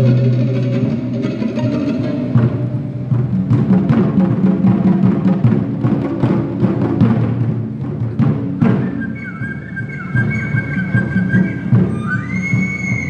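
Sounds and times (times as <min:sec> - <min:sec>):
plucked lute: 0:00.0 - 0:08.4
drums beating fast rhythm: 0:00.0 - 0:09.0, 0:10.1 - 0:13.0.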